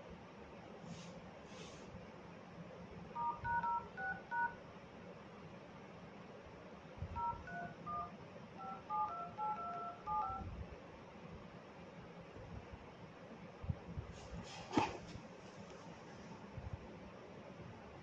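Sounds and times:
phone touch-tone beeps: 0:03.2 - 0:04.6, 0:07.2 - 0:10.4.

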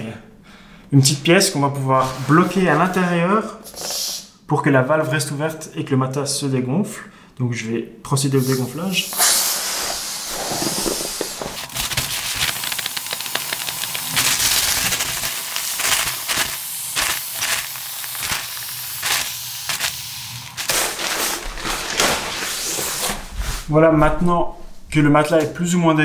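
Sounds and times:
air hissing out of valve: 0:03.6 - 0:04.4, 0:08.4 - 0:21.0.

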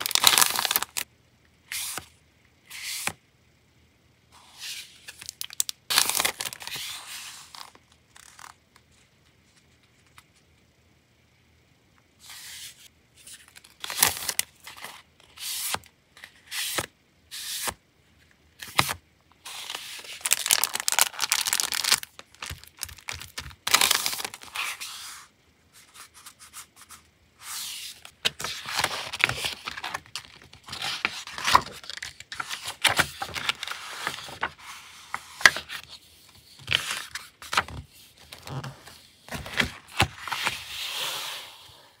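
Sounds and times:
paper rustling and shuffling: 0:00.0 - 0:01.0, 0:04.6 - 0:10.5, 0:18.6 - 0:41.6.

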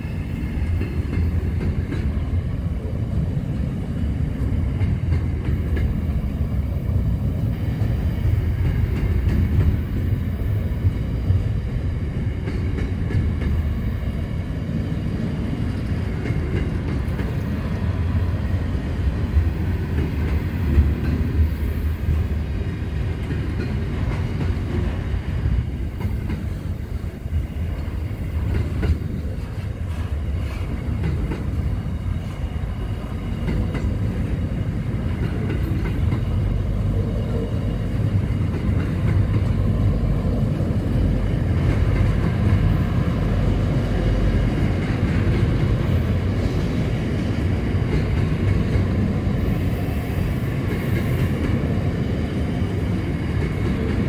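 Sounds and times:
train wheels rumbling on rail: 0:00.0 - 0:54.0.

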